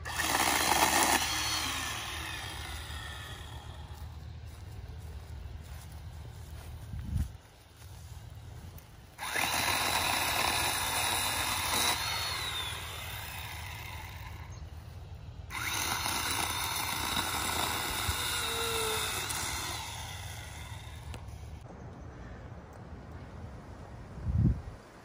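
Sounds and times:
electric pole saw cutting branches: 0.0 - 4.2, 9.1 - 14.7, 15.4 - 21.6.

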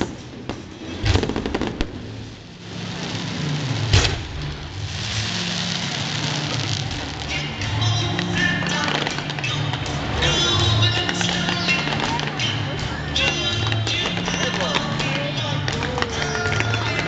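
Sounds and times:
firework bang: 0.0 - 12.4
fireworks crackling bursts: 0.0 - 17.0
hissing rush of comets: 4.6 - 7.5.

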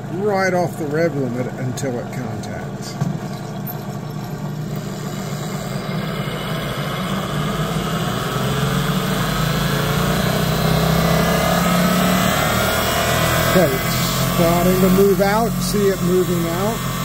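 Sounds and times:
motor hum with rising whine: 0.0 - 17.0.

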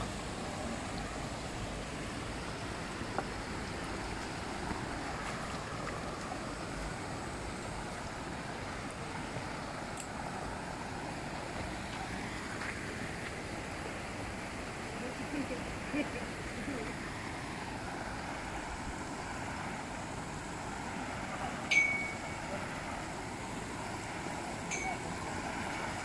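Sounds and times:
road noise: 0.0 - 26.0.

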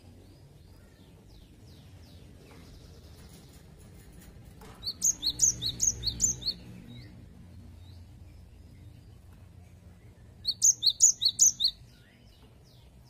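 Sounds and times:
sharp high bird chirps: 4.8 - 7.1, 10.4 - 12.1.

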